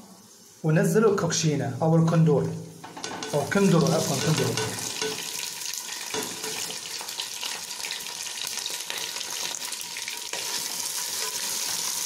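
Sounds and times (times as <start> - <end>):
vegetables sizzling in hot oil: 0.0 - 1.4, 2.8 - 12.0
wooden spatula stirring: 10.3 - 12.0.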